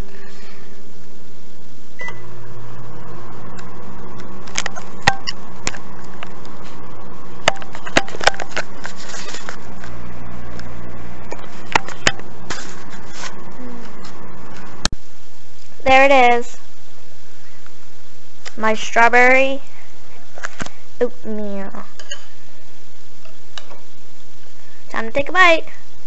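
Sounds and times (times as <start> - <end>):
microwave humming: 0.0 - 18.5
microwave beep: 2.0 - 2.4.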